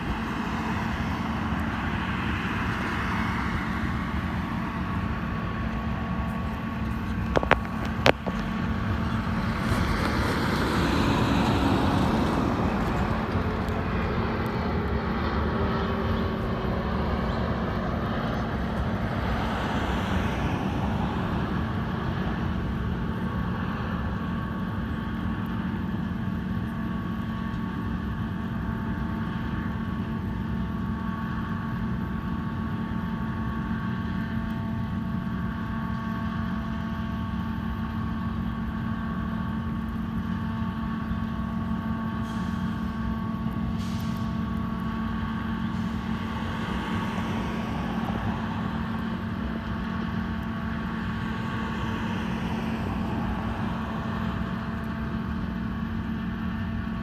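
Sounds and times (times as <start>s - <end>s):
vehicle passing: 0.0s - 22.9s, 45.3s - 54.8s
engine and traffic hum: 0.0s - 57.0s.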